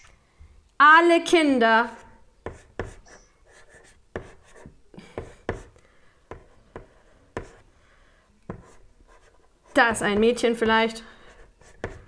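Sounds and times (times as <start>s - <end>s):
chalk scratching: 1.9s - 7.6s, 8.5s - 10.4s, 11.3s - 12.0s
chalk tapping on blackboard: 2.4s - 7.6s, 8.5s - 10.4s, 11.4s - 12.0s.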